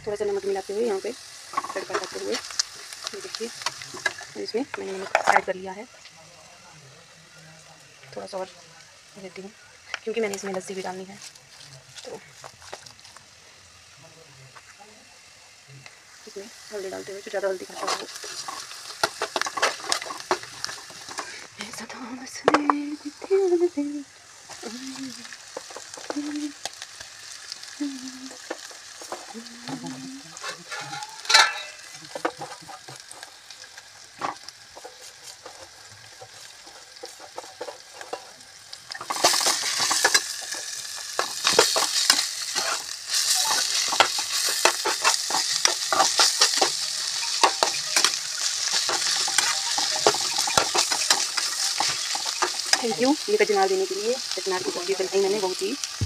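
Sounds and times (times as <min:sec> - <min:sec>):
vegetables sizzling in a pan: 0:00.0 - 0:56.0
metal spatula scraping a pan: 0:17.2 - 0:21.5, 0:30.3 - 0:53.6.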